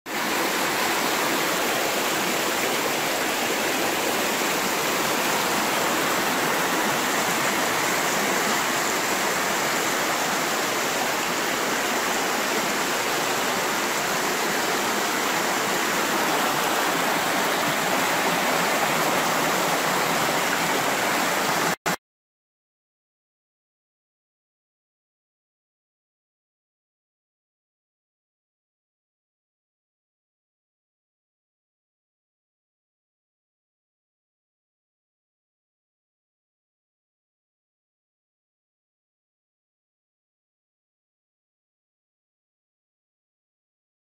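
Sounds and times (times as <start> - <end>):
floodwater rushing: 0.1 - 21.9.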